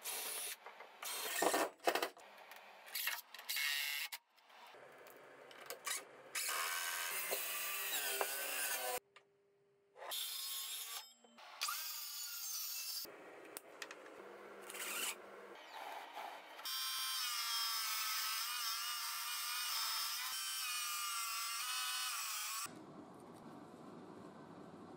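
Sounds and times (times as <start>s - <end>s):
circular saw cutting wood: 6.4s - 9.0s, 14.7s - 22.7s.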